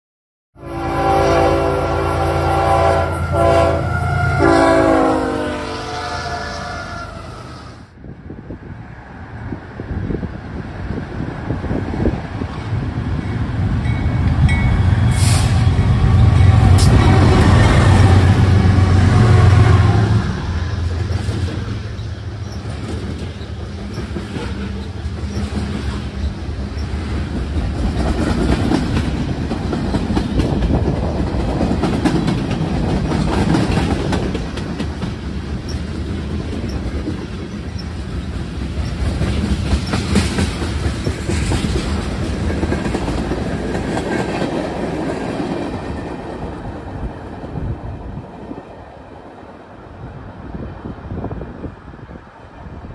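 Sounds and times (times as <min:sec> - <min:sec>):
diesel locomotive engine drone: 0:00.6 - 0:52.9
train wheels clacking over rail joints: 0:20.9 - 0:46.4.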